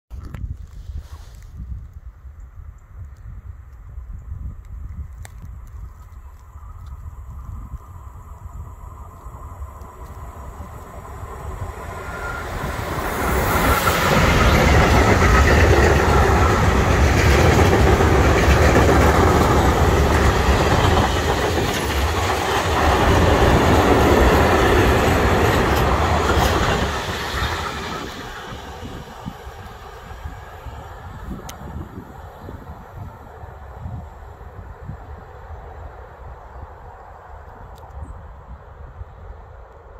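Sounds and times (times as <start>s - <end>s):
train wheels rumbling on rails: 6.6s - 34.1s.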